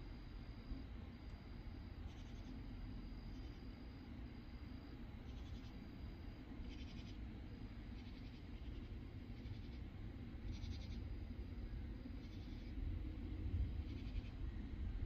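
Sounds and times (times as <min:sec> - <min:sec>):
insects rasping calls: 0:02.0 - 0:02.6, 0:04.8 - 0:12.8, 0:13.8 - 0:14.4.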